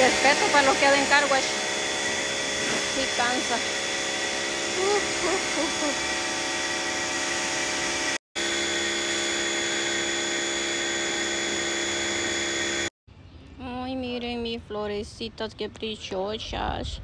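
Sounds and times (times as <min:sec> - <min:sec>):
water jet hissing: 0:00.0 - 0:08.2
pressure washer motor whine: 0:00.0 - 0:13.0.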